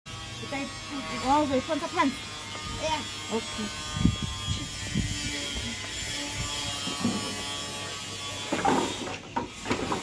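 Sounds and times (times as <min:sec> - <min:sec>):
steady mechanical buzz: 0:00.1 - 0:09.6.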